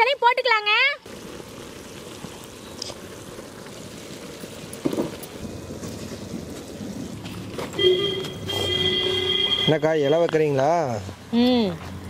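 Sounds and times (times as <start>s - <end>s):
pot of rice bubbling: 0.0s - 12.0s.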